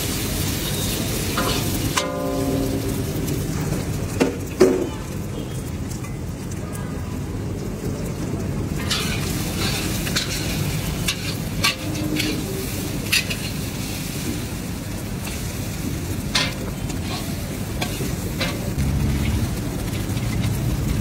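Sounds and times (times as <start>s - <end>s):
eggs sizzling in hot oil: 0.0s - 21.0s
spatula scraping and knocking on wok: 1.3s - 3.5s, 8.8s - 14.4s, 16.2s - 21.0s.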